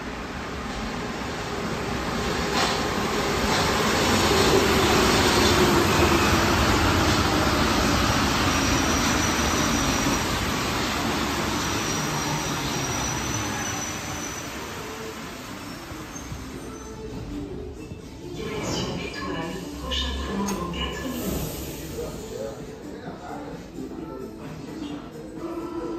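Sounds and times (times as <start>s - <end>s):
metro train running: 0.0s - 25.9s.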